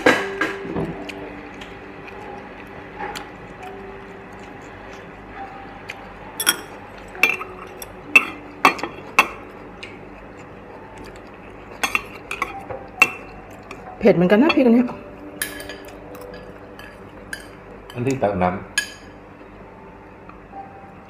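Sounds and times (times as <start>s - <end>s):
metal utensils clinking on glass: 6.4s - 9.4s.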